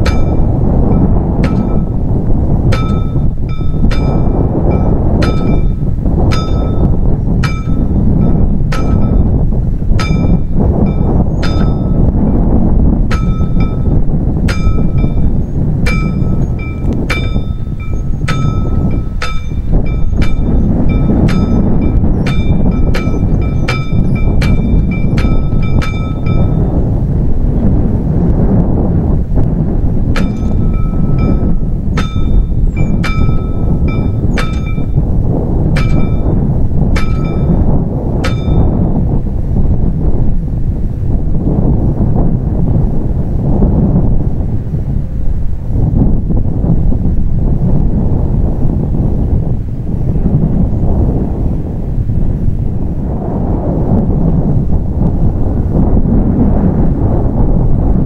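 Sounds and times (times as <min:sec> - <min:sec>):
low rumble: 0:00.0 - 0:58.0
wind buffeting microphone: 0:00.0 - 0:58.0
level crossing bell striking: 0:02.8 - 0:05.8, 0:06.4 - 0:06.9, 0:15.9 - 0:26.6, 0:30.2 - 0:35.0, 0:37.0 - 0:37.6, 0:38.3 - 0:38.8.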